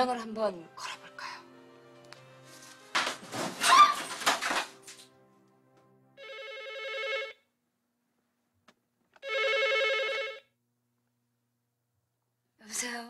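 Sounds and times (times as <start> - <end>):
telephone ringing: 6.2 - 7.5, 9.2 - 10.5.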